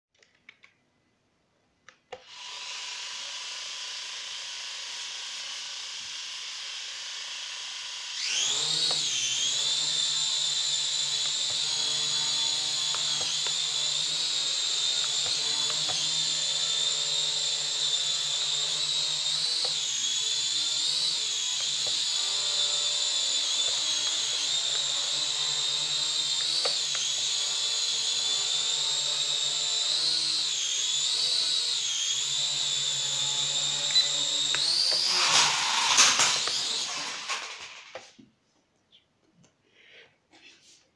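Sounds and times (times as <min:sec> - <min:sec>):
clicks: 0:00.1 - 0:00.8
toy drone motors whining: 0:02.2 - 0:38.0.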